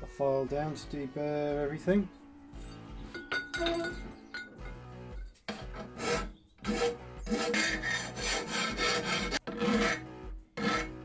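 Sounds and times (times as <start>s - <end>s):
hand file scraping metal: 5.4s - 11.0s.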